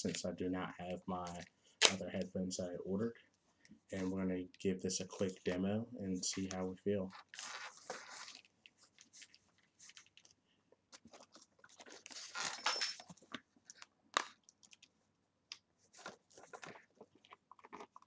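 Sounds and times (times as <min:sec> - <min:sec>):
headphone cable rustling: 0:06.2 - 0:15.0, 0:15.8 - 0:18.0.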